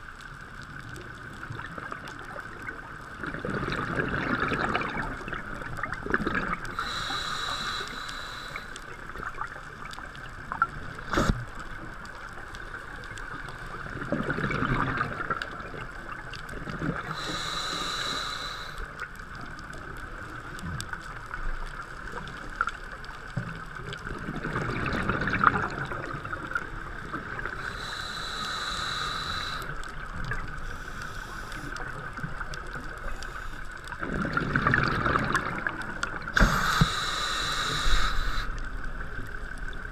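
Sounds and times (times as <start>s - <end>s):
exhaled bubbles underwater: 0.9s - 21.4s, 22.0s - 33.2s, 33.9s - 39.9s
steady hiss: 6.6s - 13.9s, 15.5s - 23.9s, 25.6s - 34.0s, 35.6s - 39.9s
regulator inhalation hiss with whistle: 6.8s - 8.9s, 17.0s - 19.0s, 27.6s - 29.8s, 30.6s - 31.8s, 36.4s - 38.6s.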